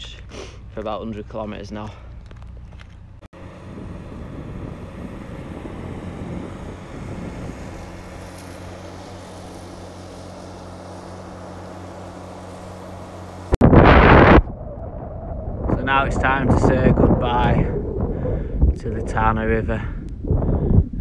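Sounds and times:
outdoor noise: 0.0s - 15.8s
low engine hum: 0.0s - 21.0s.

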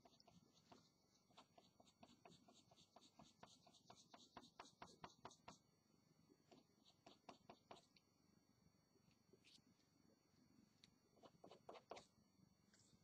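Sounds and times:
pencil hatching on paper: 0.0s - 5.6s, 6.5s - 8.0s, 11.2s - 12.1s.

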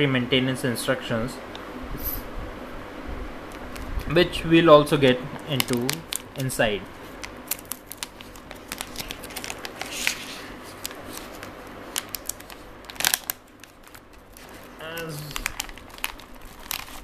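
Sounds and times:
plastic pouch crinkling: 5.1s - 17.0s.

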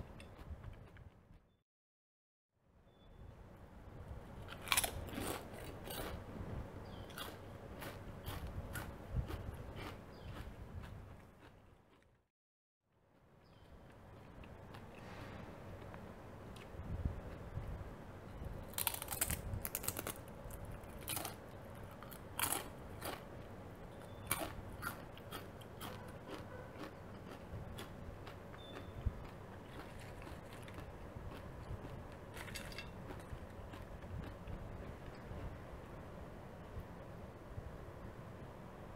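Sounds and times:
soft chewing: 0.0s - 1.5s, 4.5s - 12.2s, 13.4s - 17.8s, 18.7s - 36.0s
chips crunching: 4.5s - 6.2s, 18.7s - 23.3s, 24.3s - 28.4s, 29.2s - 34.5s.

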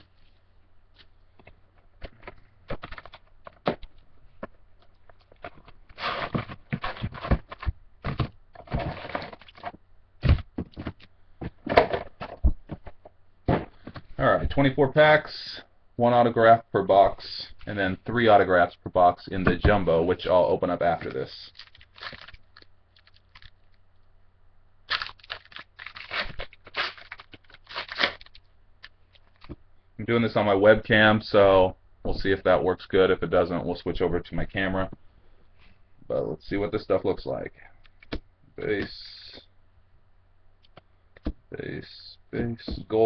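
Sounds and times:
packs knocking on a desk: 6.2s - 14.1s
foil packs crinkling: 20.9s - 23.8s, 24.9s - 29.5s.

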